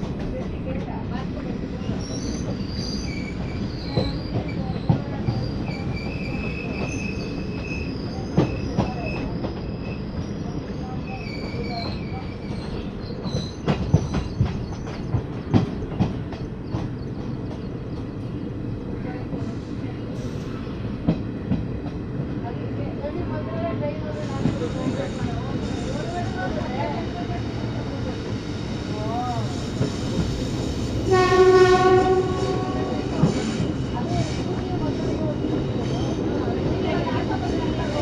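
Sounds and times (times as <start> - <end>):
train wheels rumbling on rail: 0.0 - 38.0
clacks over rail joints: 11.8 - 18.4.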